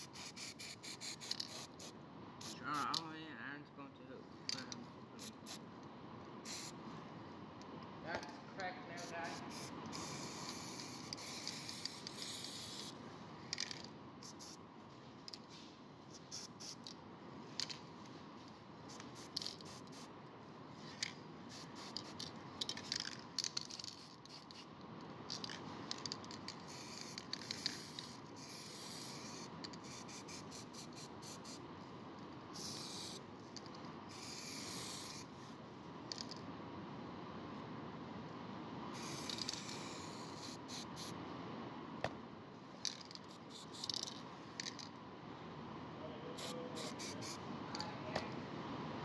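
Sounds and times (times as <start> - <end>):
spray paint hissing: 0.0 - 2.9, 5.2 - 5.6, 6.4 - 6.8, 9.0 - 14.6, 16.1 - 16.9, 18.9 - 20.1, 21.0 - 24.7, 25.3 - 31.6, 32.5 - 33.2, 34.1 - 35.3, 38.9 - 41.2, 42.9 - 44.8, 46.4 - 47.4.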